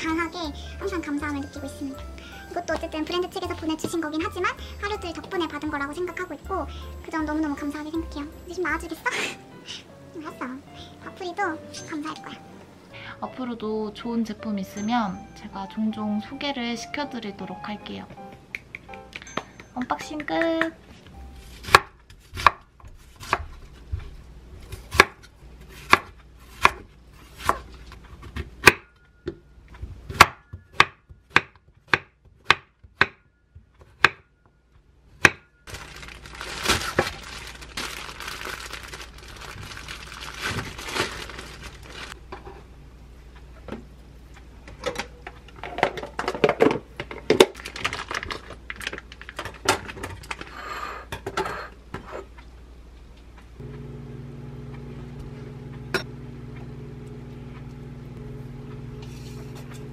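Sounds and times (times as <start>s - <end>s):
knife chopping on wooden board: 21.6s - 23.6s, 24.7s - 27.7s, 30.1s - 33.2s, 33.9s - 34.3s
plastic package rustling: 35.7s - 42.2s, 47.2s - 50.5s
scissors cutting package: 35.7s - 42.2s, 47.4s - 49.6s.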